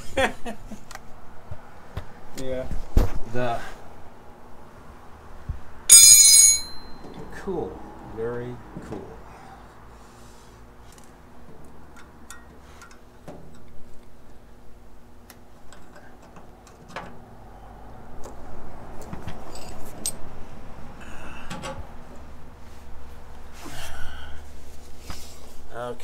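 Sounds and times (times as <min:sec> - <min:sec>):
metal tools clinking and tapping: 0:05.9 - 0:07.2.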